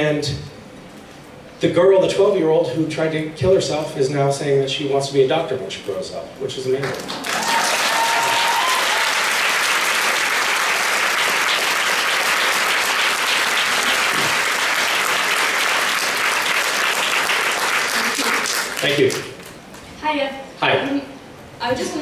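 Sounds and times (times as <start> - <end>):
audience applauding: 6.8 - 19.6.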